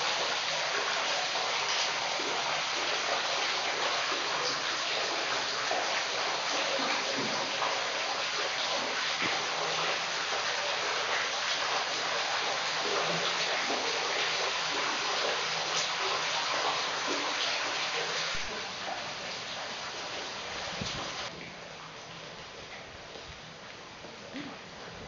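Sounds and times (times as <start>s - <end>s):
water dripping into a pool: 0.0s - 25.0s.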